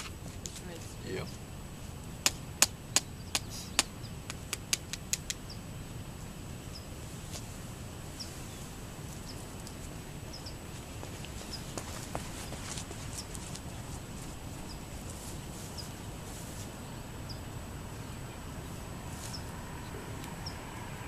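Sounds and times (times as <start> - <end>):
low background noise: 0.0 - 21.0
sharp clicks: 2.2 - 5.4.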